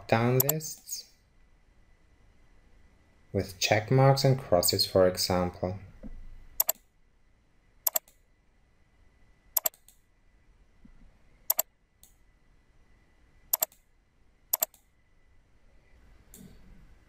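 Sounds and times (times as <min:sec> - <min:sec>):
computer mouse button clicks: 0:06.6 - 0:06.8, 0:07.9 - 0:08.2, 0:09.6 - 0:09.9, 0:13.6 - 0:13.8, 0:14.6 - 0:14.8.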